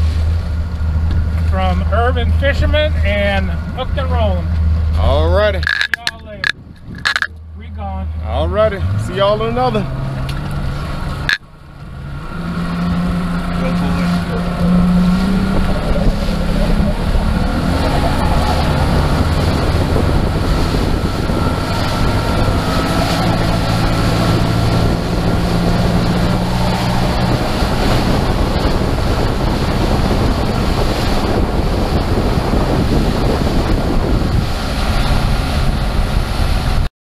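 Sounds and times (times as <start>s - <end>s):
outboard engine drone: 0.0s - 36.9s
rushing boat wake: 0.0s - 36.9s
wind buffeting microphone: 3.6s - 7.3s, 12.4s - 36.9s.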